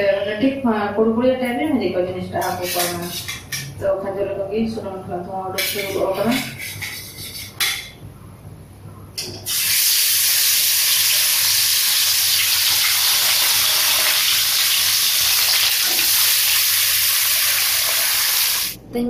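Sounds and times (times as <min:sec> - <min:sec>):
fish sizzling in hot oil: 0:09.5 - 0:18.8.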